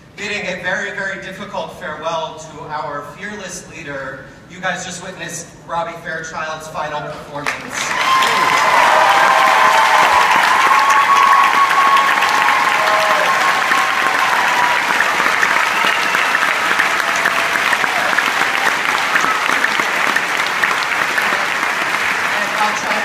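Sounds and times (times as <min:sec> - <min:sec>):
audience clapping: 0:07.4 - 0:23.0
people cheering: 0:07.7 - 0:23.0.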